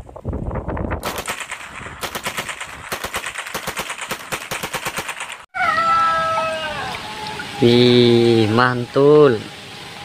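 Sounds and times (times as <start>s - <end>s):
submachine gun firing bursts: 1.0s - 5.5s.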